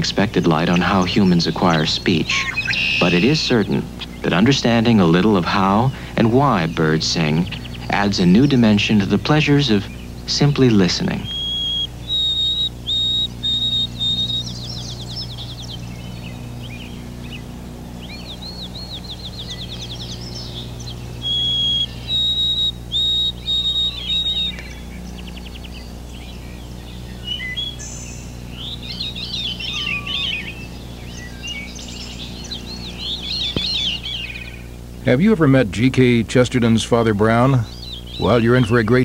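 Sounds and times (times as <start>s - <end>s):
songbird whistling and trilling: 0.0s - 4.4s, 11.1s - 34.8s, 37.6s - 39.0s
busy varied bird song: 0.0s - 39.0s
steady low hum: 0.0s - 39.0s.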